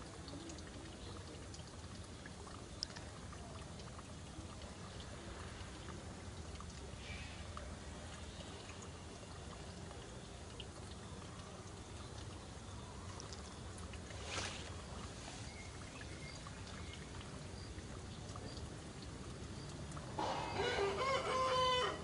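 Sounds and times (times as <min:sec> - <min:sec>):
rooster crowing: 0:20.2 - 0:22.0.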